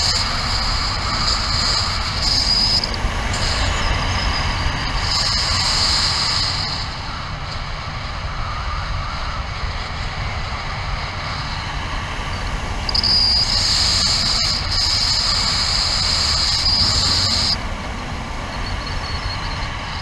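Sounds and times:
wind rushing over microphone: 0.0 - 20.0
high whistle: 1.0 - 6.9, 12.9 - 17.6.

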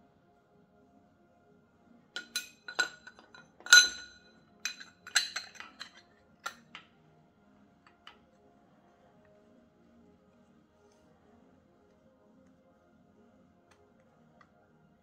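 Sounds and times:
metal tools clinking: 2.2 - 6.7.

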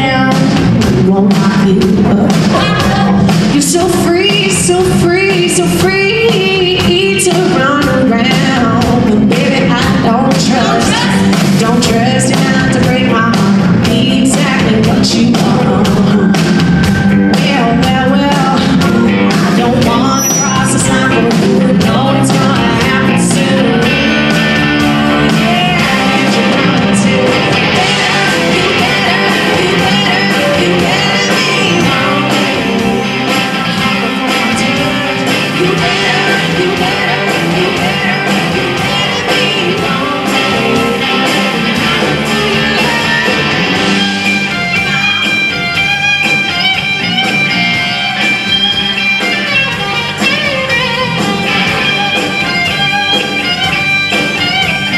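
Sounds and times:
live rock band playing: 0.0 - 54.9
sustained electric guitar line: 0.0 - 54.9
drum hits: 0.4 - 54.9.

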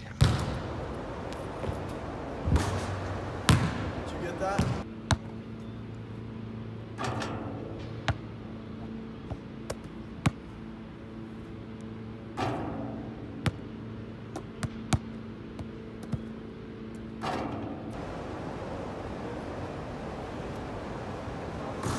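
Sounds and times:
steady low hum: 0.0 - 21.9
ball striking rim and backboard: 0.2 - 5.3, 12.4 - 13.6
basketball bouncing on asphalt: 0.2 - 5.3, 14.4 - 16.3.

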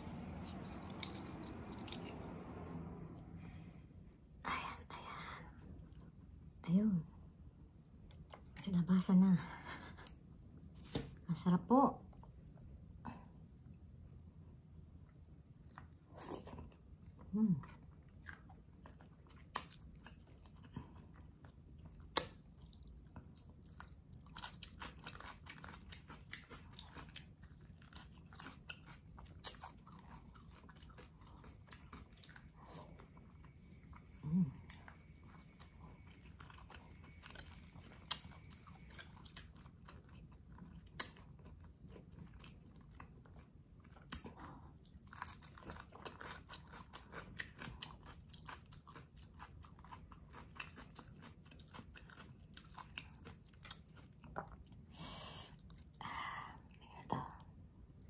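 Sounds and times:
chewing with wet mouth clicks: 7.7 - 8.6, 15.0 - 54.9.

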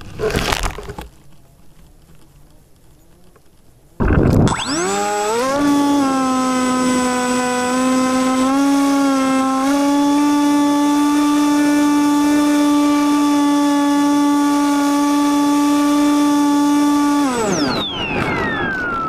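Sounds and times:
model airplane motor droning: 4.0 - 19.0.

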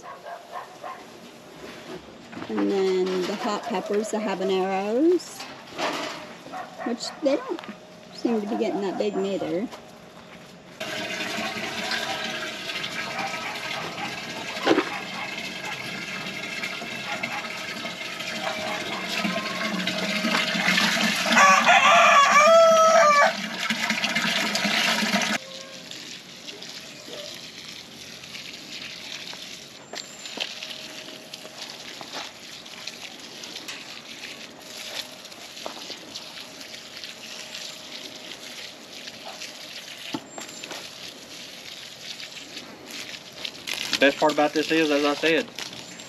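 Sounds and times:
hose water soaking into mulch: 9.4 - 46.0
hose water splashing into pan: 10.8 - 46.0
rooster crowing: 21.2 - 23.5.

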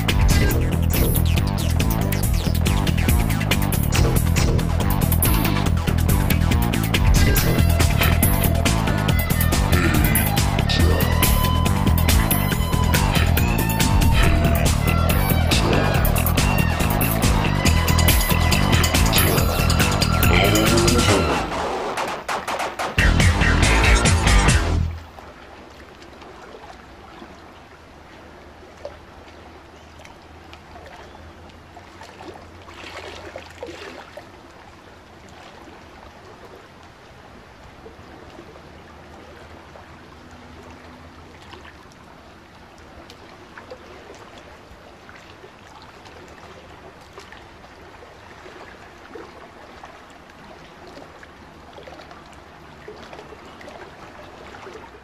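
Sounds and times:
water rushing along hull: 0.0 - 55.0.

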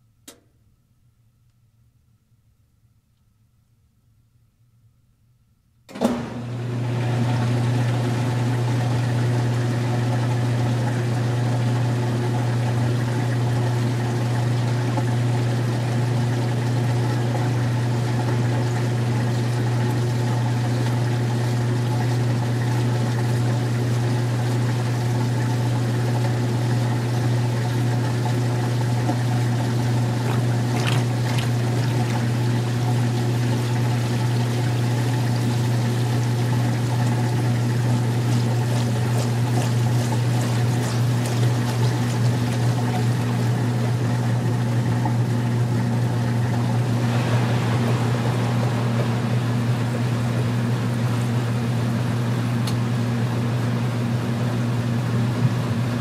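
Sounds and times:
washing machine motor hum: 5.9 - 56.0
water draining: 29.5 - 34.1.

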